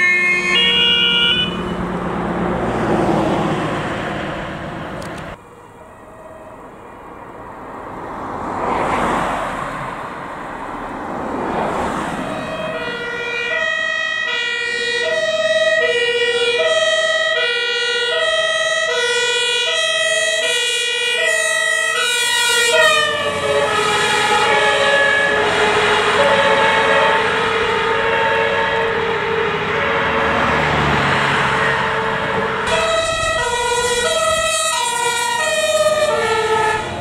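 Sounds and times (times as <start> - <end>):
two-tone fire engine siren: 0.0 - 9.9, 10.5 - 37.0
vehicles passing on road: 0.0 - 37.0.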